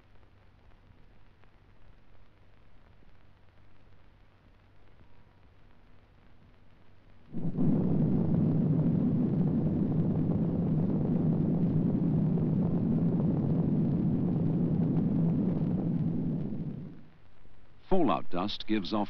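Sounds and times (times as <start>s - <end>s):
explosion low roar: 7.3s - 17.1s.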